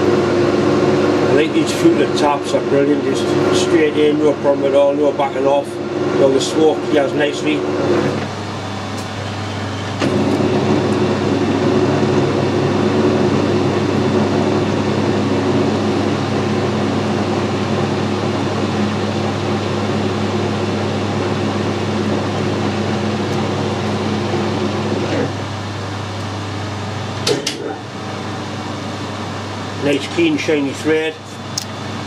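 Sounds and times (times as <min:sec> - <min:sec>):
metal lathe running: 0:00.0 - 0:32.0.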